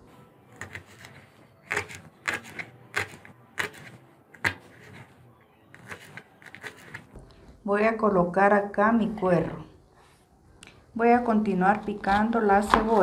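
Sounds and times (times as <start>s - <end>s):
knife chopping on plastic board: 0.6s - 5.1s, 5.8s - 7.1s.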